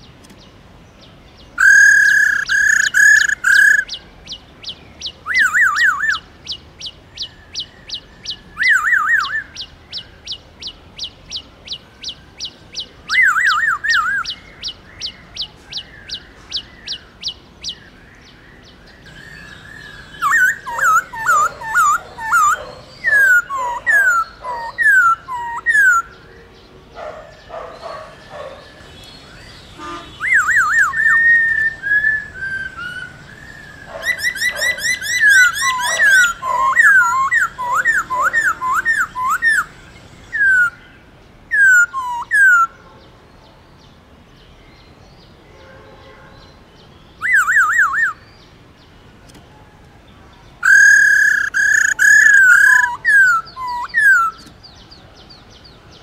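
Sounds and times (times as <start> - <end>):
bird rapid trill: 1.6 - 17.9, 19.0 - 26.1, 27.1 - 40.8, 50.6 - 54.5
bird whistling song: 1.6 - 26.4, 27.1 - 40.9, 41.5 - 42.7, 47.1 - 48.4, 50.6 - 54.9.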